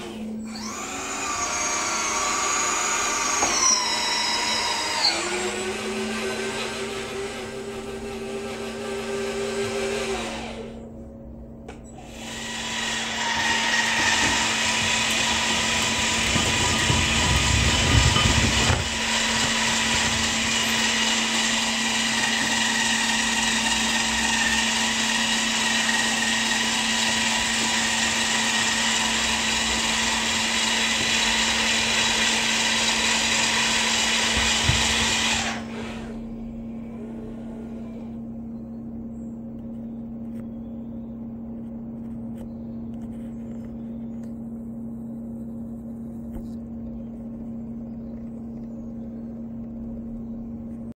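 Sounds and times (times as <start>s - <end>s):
model excavator motor whir: 0.0s - 10.9s, 11.9s - 38.3s.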